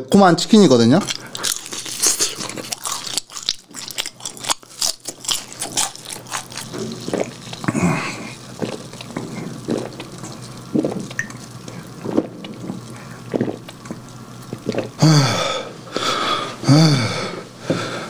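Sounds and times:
throaty vocal sounds: 6.6s - 11.1s, 14.5s - 18.0s
man gulping from bottle: 6.6s - 15.7s.

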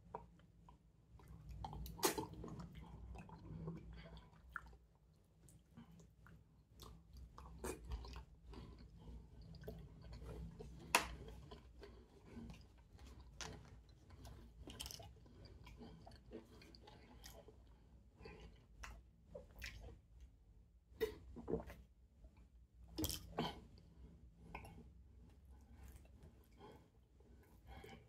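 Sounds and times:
person chewing wetly: 0.0s - 28.0s.

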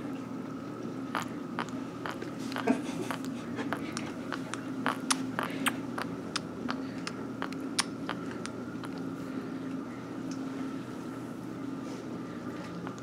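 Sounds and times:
baby sucking on pacifier: 1.2s - 9.0s.

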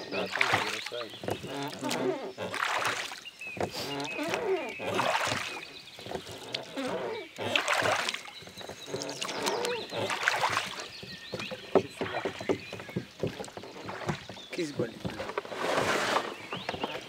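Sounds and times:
oar blades splashing in water: 0.0s - 17.0s
oars knocking in oarlocks: 0.0s - 17.0s.

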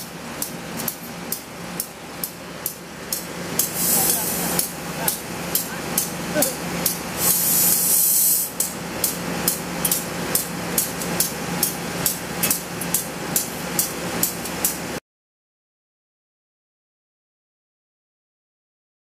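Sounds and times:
diesel locomotive idling: 0.0s - 15.0s
compressed air hiss: 3.6s - 4.7s, 7.1s - 8.7s.

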